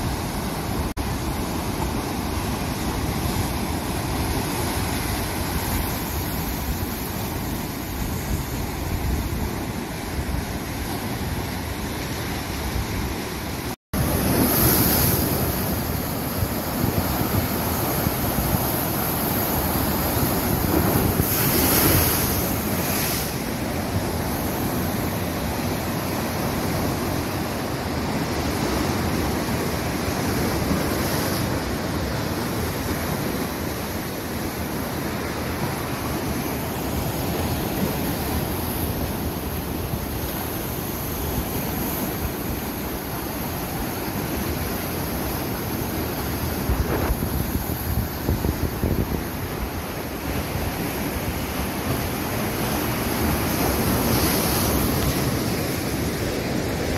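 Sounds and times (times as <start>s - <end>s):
surf breaking over rocks: 14.0s - 56.9s.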